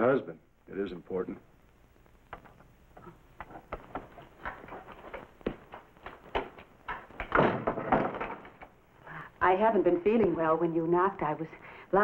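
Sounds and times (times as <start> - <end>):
boot footsteps on wooden floor: 3.4 - 6.7.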